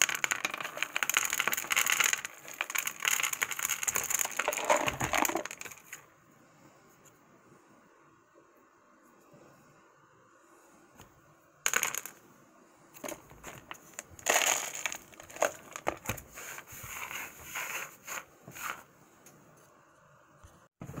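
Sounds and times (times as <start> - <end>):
trail mix rattling into a jar: 0.0 - 6.0, 13.0 - 16.0.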